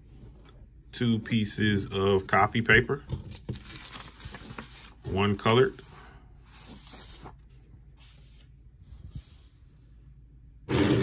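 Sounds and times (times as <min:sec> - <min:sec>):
paper rustling: 0:03.1 - 0:09.4.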